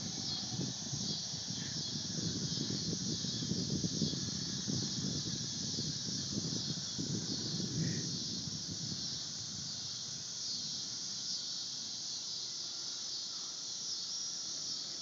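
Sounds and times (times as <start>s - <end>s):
wind buffeting microphone: 0.0s - 10.3s
insect chorus buzzing: 0.0s - 15.0s.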